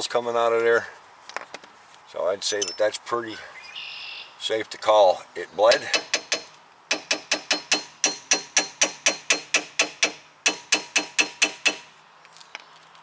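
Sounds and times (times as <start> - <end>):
hammer tapping metal: 5.7 - 11.9.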